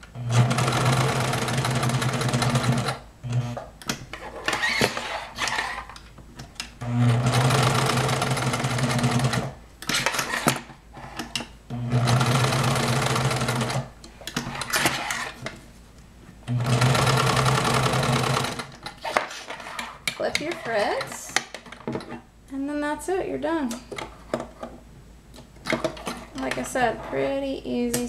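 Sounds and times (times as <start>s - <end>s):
sewing machine stitching: 0.3s - 3.5s, 6.8s - 10.6s, 11.9s - 15.4s, 16.5s - 21.2s.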